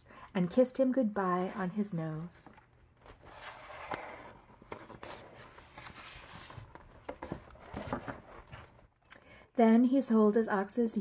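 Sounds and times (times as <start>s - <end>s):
book pages turning: 1.3s - 8.9s.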